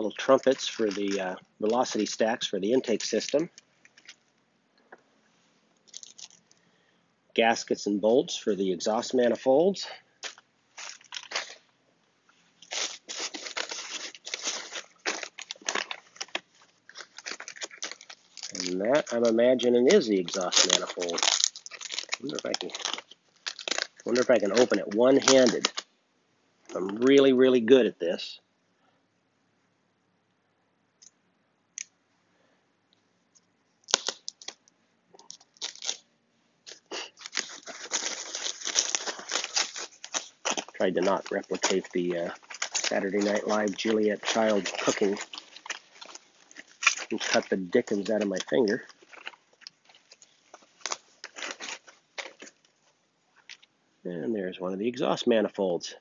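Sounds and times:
packing paper and foam crinkling: 0.0s - 4.3s, 5.8s - 6.6s, 10.2s - 11.7s, 12.6s - 25.9s, 33.8s - 36.0s, 36.6s - 53.7s.

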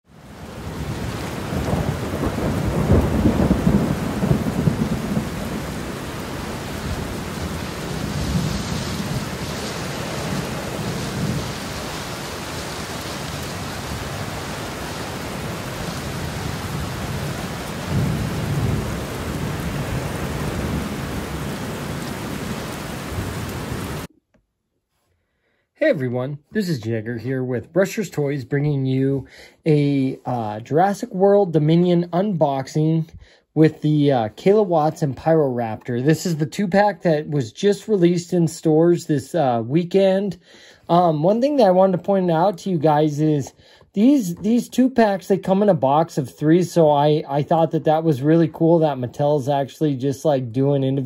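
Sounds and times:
rain hiss: 0.1s - 24.1s
thunder rolling: 0.4s - 24.1s.

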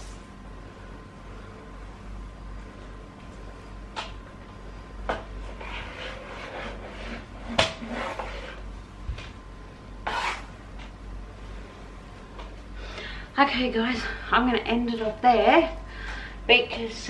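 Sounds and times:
mop rubbing and scraping floor: 5.1s - 9.4s, 10.0s - 10.9s.

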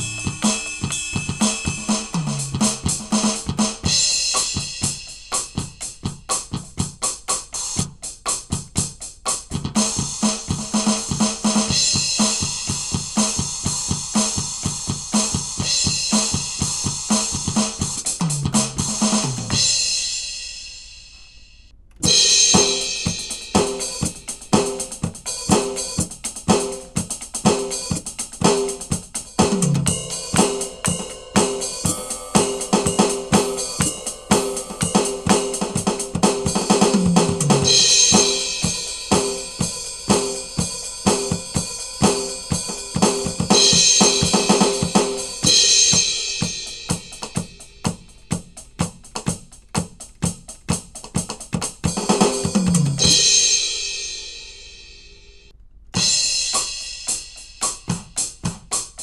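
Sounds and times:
cymbal crash: 0.0s - 5.7s, 19.6s - 24.8s, 29.8s - 47.8s, 53.0s - 57.8s
electronic drum kit beat: 0.0s - 55.2s, 56.0s - 59.0s
tom fills: 29.4s - 40.6s.

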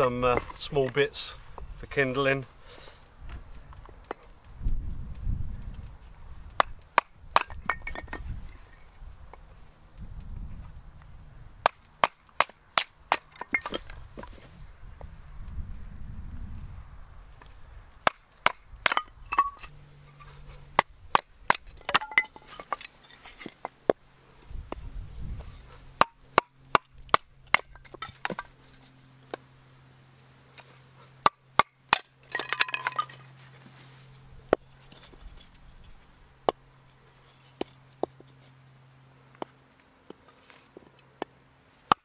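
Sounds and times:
knife chopping wood on block: 6.6s - 8.2s.

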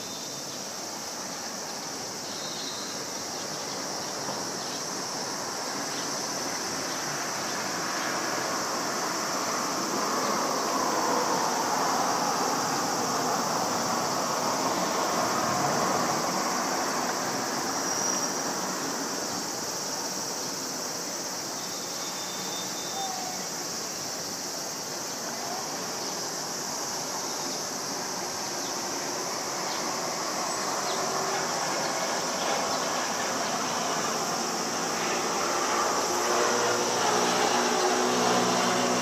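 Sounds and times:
distant jet engine roar: 5.2s - 19.3s, 28.0s - 39.0s.

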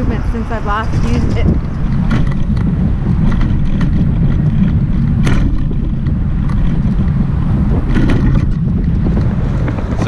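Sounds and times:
wind buffeting microphone: 0.0s - 10.0s
sharp knocks or rattles: 0.9s - 10.0s.

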